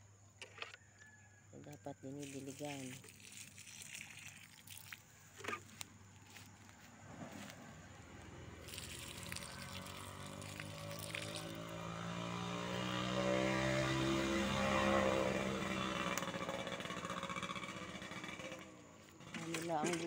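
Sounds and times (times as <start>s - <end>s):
engine humming: 5.0s - 20.0s.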